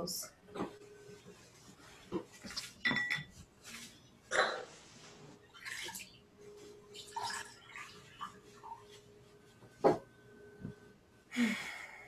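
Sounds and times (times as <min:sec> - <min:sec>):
cloth rustling: 0:00.7 - 0:04.1.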